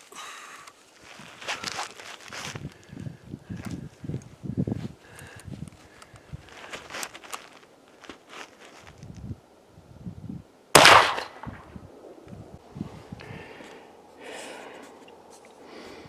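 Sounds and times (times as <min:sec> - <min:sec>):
faint clicks: 0:05.1 - 0:06.3
rifle shot: 0:10.7 - 0:11.7.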